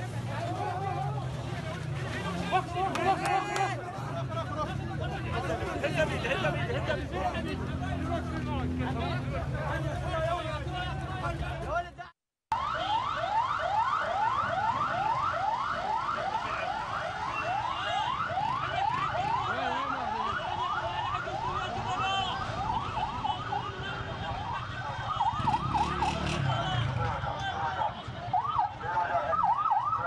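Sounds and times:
ambulance siren: 12.5 - 30.0.

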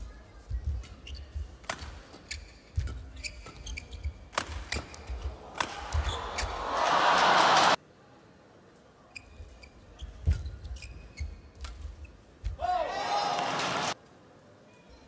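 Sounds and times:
rackets striking shuttlecock: 0.8 - 6.6
shoe squeaks on court: 0.9 - 5.2, 9.1 - 11.6.

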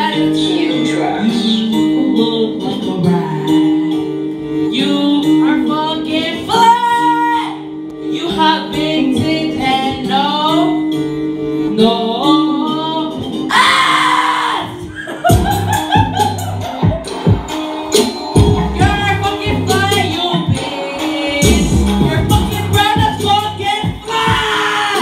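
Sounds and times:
woman singing into microphone: 0.0 - 4.1, 4.7 - 10.8, 11.7 - 14.8, 18.8 - 25.0
backing music: 0.0 - 25.0.

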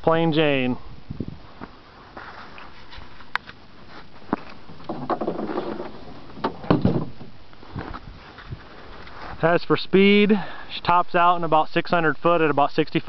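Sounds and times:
handling rustle: 1.6 - 9.4
hood clicks and knocks: 4.3 - 8.0.

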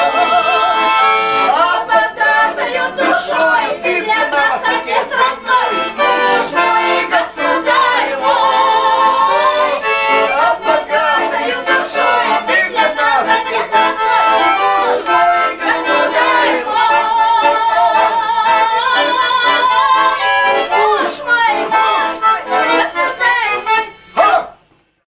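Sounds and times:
accordion music: 0.0 - 24.6
person singing: 0.0 - 24.6.

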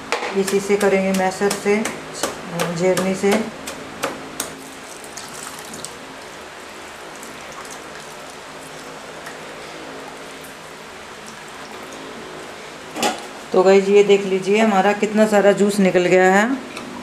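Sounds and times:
juice trickling into a bowl: 4.6 - 13.0.

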